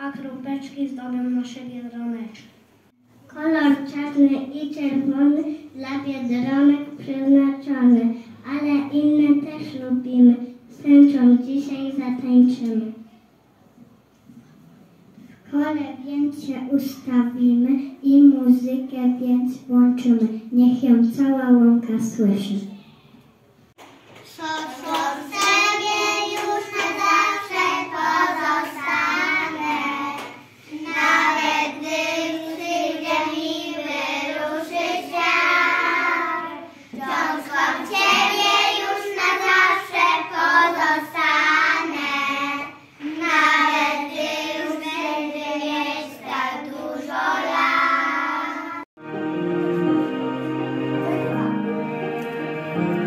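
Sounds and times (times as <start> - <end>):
children singing in unison: 24.4 - 48.9
instrumental music: 49.0 - 53.0.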